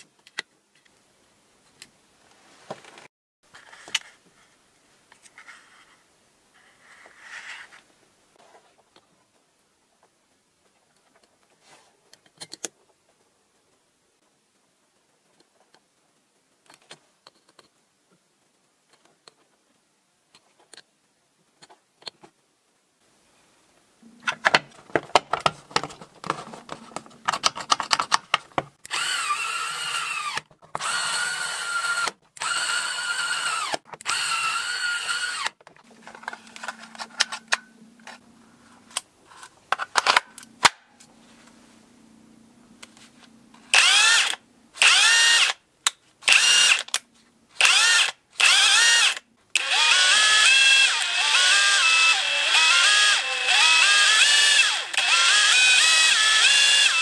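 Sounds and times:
cordless screwdriver whirring: 28.8s - 35.6s, 43.7s - 45.6s, 46.3s - 47.0s, 47.6s - 57.0s
impact wrench motor whining: 28.9s - 35.5s, 43.7s - 45.6s, 46.3s - 46.9s, 47.6s - 57.0s.

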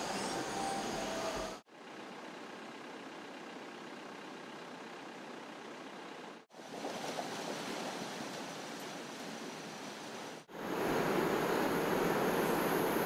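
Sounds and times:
river running over rapids: 6.6s - 13.0s.

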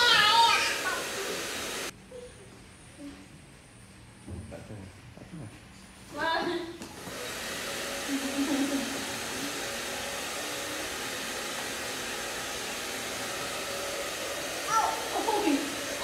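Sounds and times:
hair dryer blowing: 0.0s - 1.9s, 6.8s - 16.0s.

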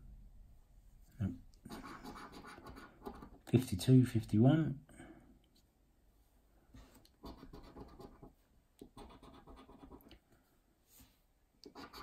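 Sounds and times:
coin scratching a scratchcard: 1.7s - 3.4s, 7.2s - 8.3s, 9.0s - 10.0s, 11.6s - 12.0s.

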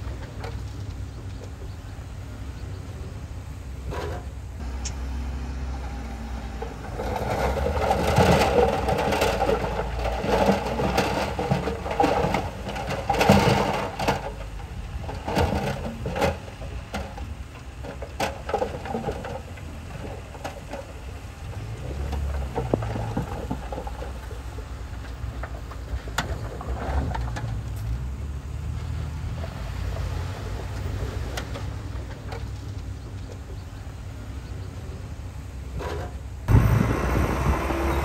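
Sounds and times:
diesel engine running low: 0.0s - 38.0s
rough crackling noise: 5.7s - 33.8s.

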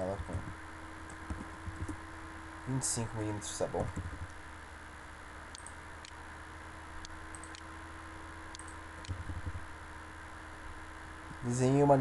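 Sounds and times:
low hum and hiss: 0.0s - 12.0s
computer mouse clicks: 5.5s - 6.2s, 7.0s - 7.7s, 8.5s - 9.6s.

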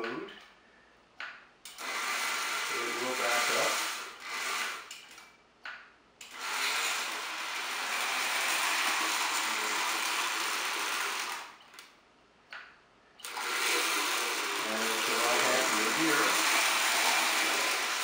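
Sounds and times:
model train motor whirring: 1.8s - 5.0s, 6.2s - 11.6s, 13.2s - 18.0s.

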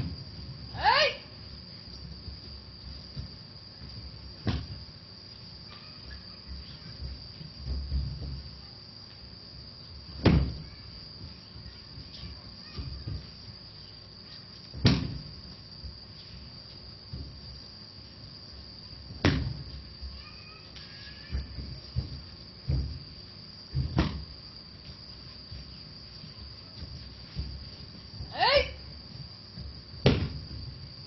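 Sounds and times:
bodies thudding on a mat: 0.0s - 0.7s, 2.0s - 5.0s, 6.5s - 8.6s, 10.0s - 13.5s, 14.7s - 16.2s, 17.0s - 17.6s, 19.0s - 20.1s, 20.9s - 31.0s
bare feet thumping on a mat: 0.0s - 0.9s, 1.5s - 5.1s, 5.7s - 9.2s, 9.8s - 13.7s, 14.3s - 20.2s, 20.8s - 31.0s
crickets chirring: 0.0s - 31.0s.

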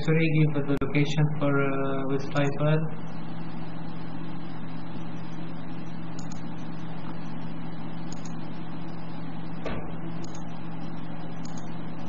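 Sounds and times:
low hum with hiss: 0.0s - 12.0s
sharp click: 6.2s - 6.5s, 8.1s - 8.4s, 9.6s - 10.5s, 11.4s - 11.7s.

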